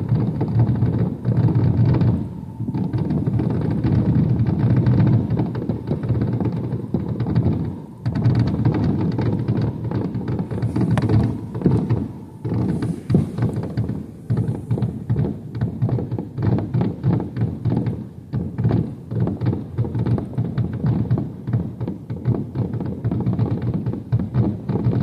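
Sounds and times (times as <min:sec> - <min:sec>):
fireworks booms and bangs: 0:00.0 - 0:25.0.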